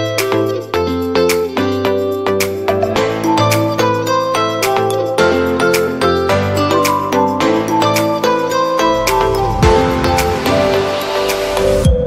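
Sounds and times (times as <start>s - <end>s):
plucked-string melody: 0.0s - 12.0s
steady low bass: 9.0s - 12.0s.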